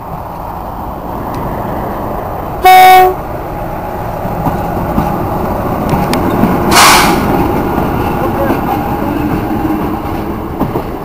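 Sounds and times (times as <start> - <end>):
locomotive horn blast: 2.6 - 3.2
brief hiss: 6.7 - 7.3.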